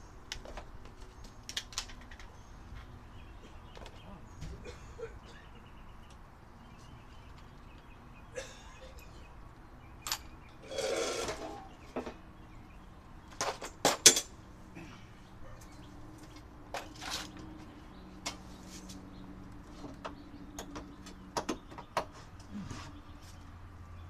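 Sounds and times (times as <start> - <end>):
scraping rustle: 10.6 - 11.7.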